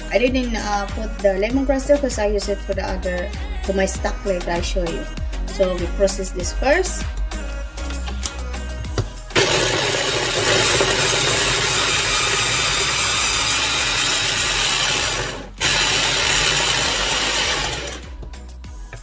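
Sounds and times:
electric food chopper whirring: 9.3s - 18.3s.

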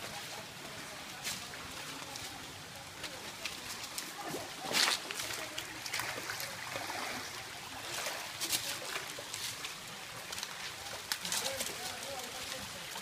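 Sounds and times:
footsteps on stones: 0.0s - 6.5s, 7.8s - 13.0s
stream trickling over rocks: 0.0s - 13.0s
dry leaves crunching: 1.1s - 6.4s, 7.9s - 13.0s.

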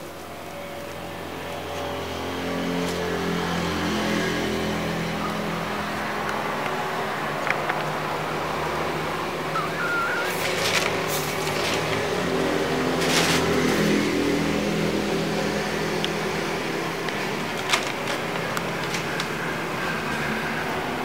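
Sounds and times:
engine humming: 0.0s - 21.0s
rustles and clicks: 9.6s - 14.0s, 17.0s - 20.3s.

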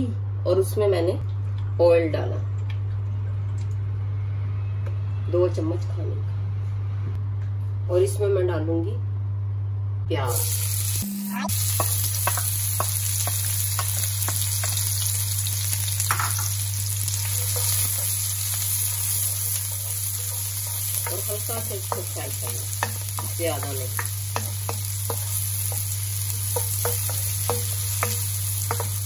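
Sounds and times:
onions sizzling in hot oil: 10.3s - 29.0s
wooden spoon scraping a wok: 17.1s - 29.0s.

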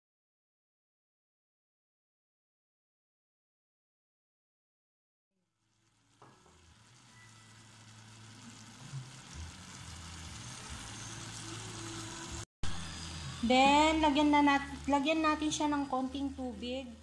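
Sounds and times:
food sizzling in a pot: 5.4s - 17.0s.

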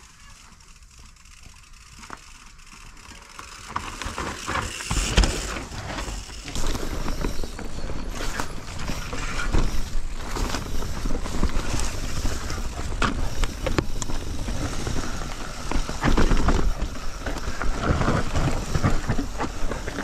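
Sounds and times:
bike freehub ratchet clicking: 0.0s - 7.3s
tyres rolling on dirt: 0.0s - 20.0s.

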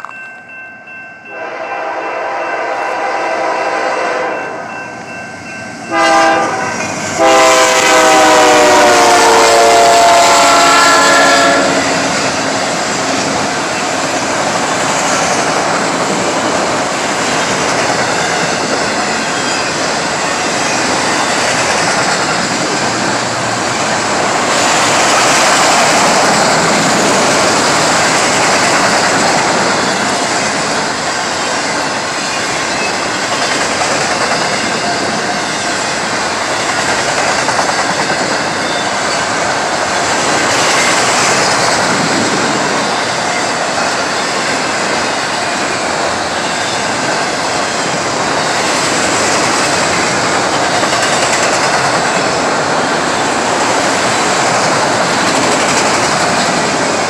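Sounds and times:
freight train horn blasts: 1.2s - 4.8s, 5.8s - 12.4s
train wheels rolling on rail: 2.6s - 57.0s.

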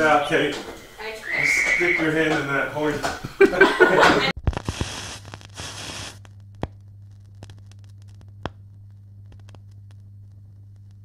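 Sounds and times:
low electrical hum: 0.0s - 11.0s
static hiss: 0.0s - 11.0s
sharp crackling pops: 4.4s - 11.0s.

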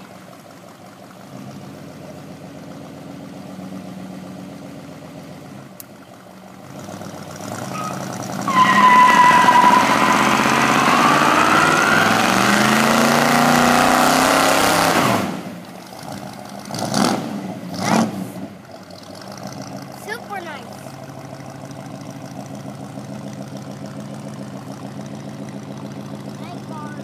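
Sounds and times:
car engine idling and revving: 0.0s - 27.0s
tyres screeching: 7.7s - 12.2s.

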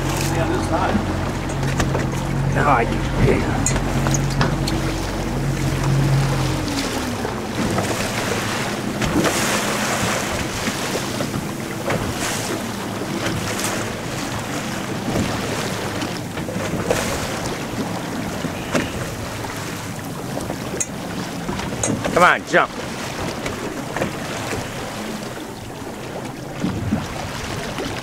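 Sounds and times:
boat engine hum: 0.0s - 28.0s
waves splashing against hull: 0.0s - 28.0s
wind on microphone: 23.2s - 28.0s.

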